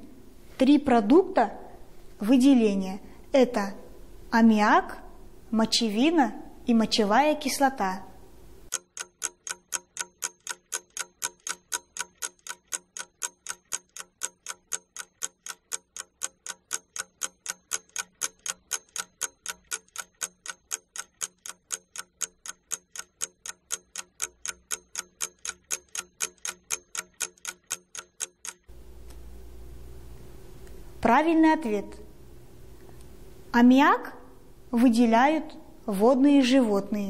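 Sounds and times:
fast clock ticking: 8.7s - 28.8s.

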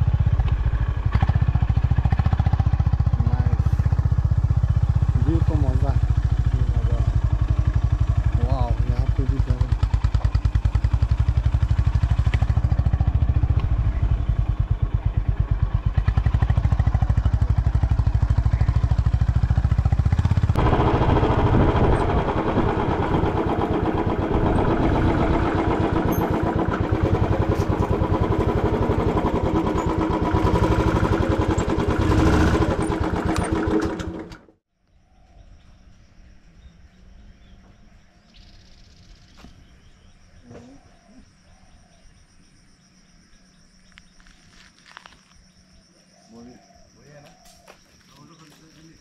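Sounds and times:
motorcycle engine running: 0.0s - 34.6s.

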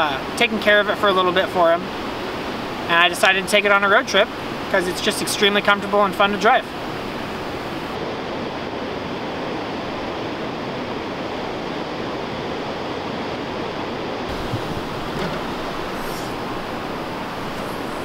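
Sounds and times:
ocean surf on rocky shore: 0.0s - 18.0s
wind rumble on microphone: 6.7s - 18.0s.

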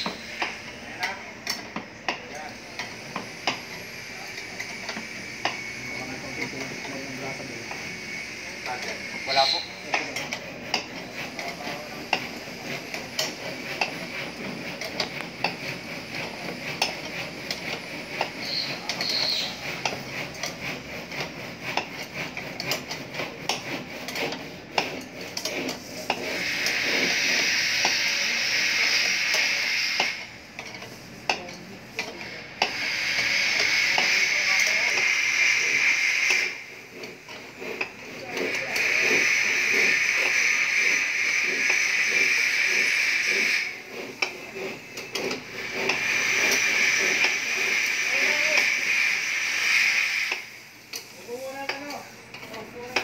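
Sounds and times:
steady hiss: 25.5s - 30.3s, 32.2s - 52.1s.

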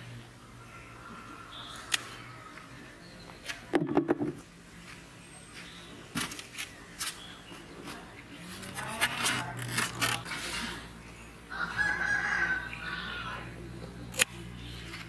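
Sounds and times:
rooster crowing: 11.5s - 13.5s.

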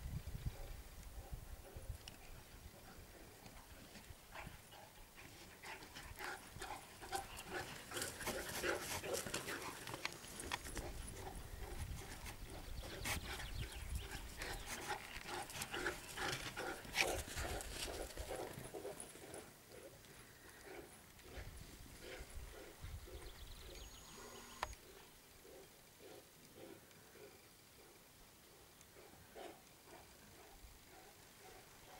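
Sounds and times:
dog panting: 2.8s - 23.8s, 29.0s - 31.6s.

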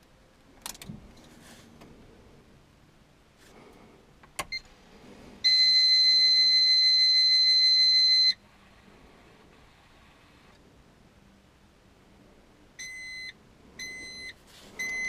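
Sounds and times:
ignition click: 4.2s - 4.7s.

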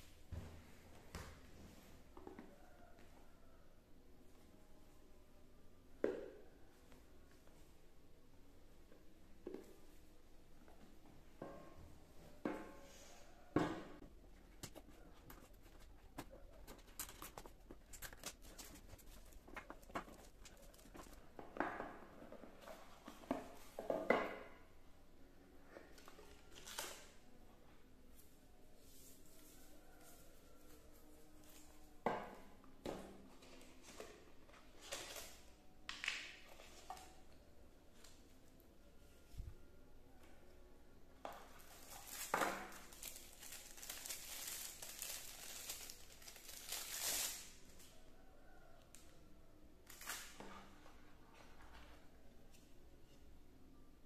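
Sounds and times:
plastic packaging crinkling: 16.7s - 21.2s, 41.6s - 47.6s.

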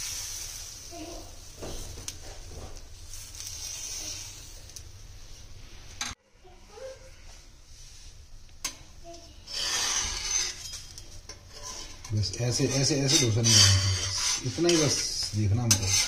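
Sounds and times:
batter sizzling: 0.0s - 6.1s, 7.7s - 16.0s
ladle scraping batter: 9.4s - 16.0s.

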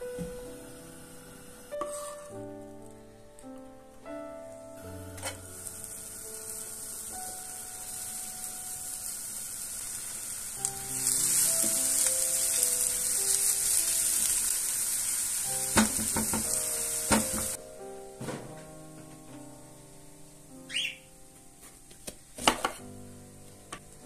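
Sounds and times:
onion sizzling in hot oil: 0.0s - 2.9s, 4.8s - 17.6s
wooden spatula stirring: 1.7s - 2.4s.

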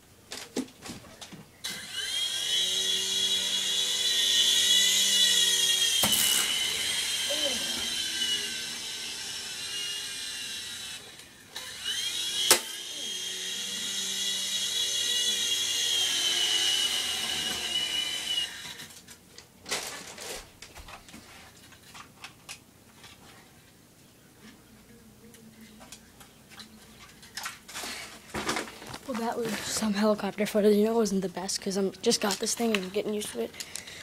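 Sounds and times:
toy helicopter motor whining: 1.6s - 19.0s.

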